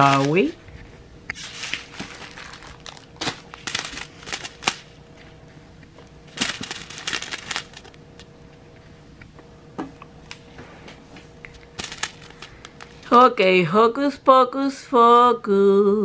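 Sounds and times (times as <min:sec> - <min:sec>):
plastic bags crinkling: 0:00.0 - 0:00.6, 0:01.4 - 0:05.0, 0:06.3 - 0:08.0, 0:11.6 - 0:13.2.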